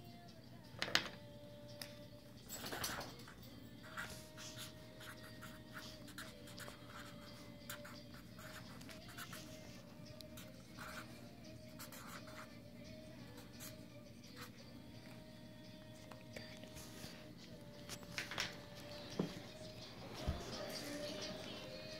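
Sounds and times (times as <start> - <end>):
marker scratching on paper: 3.8 - 12.6.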